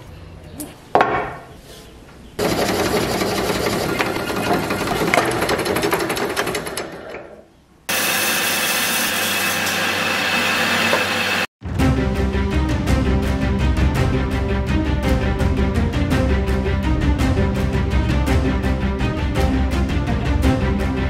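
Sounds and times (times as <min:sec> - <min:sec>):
band saw cutting wood: 0:02.4 - 0:07.0, 0:07.9 - 0:11.5.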